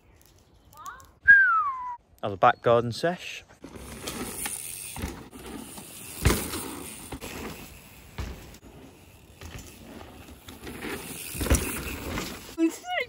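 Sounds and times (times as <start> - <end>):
bike tyres rolling on dirt: 3.5 - 13.0
bike landing thumps: 3.6 - 12.6.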